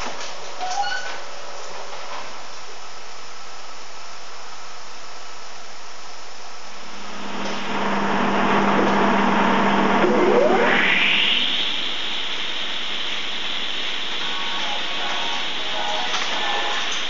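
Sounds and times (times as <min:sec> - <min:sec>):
high saw blade whine: 0:06.9 - 0:17.0
table saw spinning up: 0:07.0 - 0:13.6.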